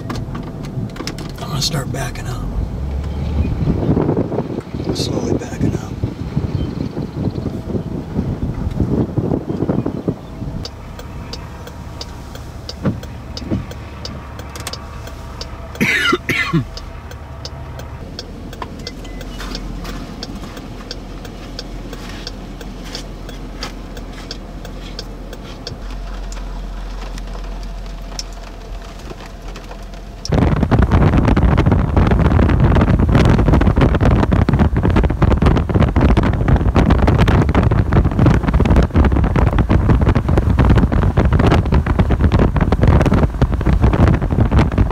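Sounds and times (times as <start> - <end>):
wind buffeting microphone: 0.0 - 18.8, 30.3 - 44.9
vehicle idling hum: 0.0 - 44.9.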